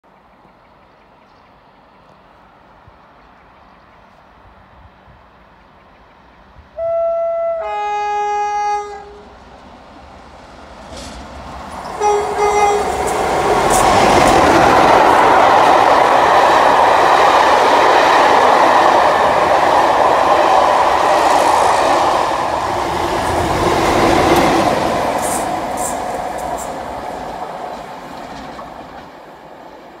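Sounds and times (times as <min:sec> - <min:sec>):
train passing at speed: 0:00.1 - 0:30.0
two-tone locomotive horn: 0:06.8 - 0:09.4, 0:11.9 - 0:13.9.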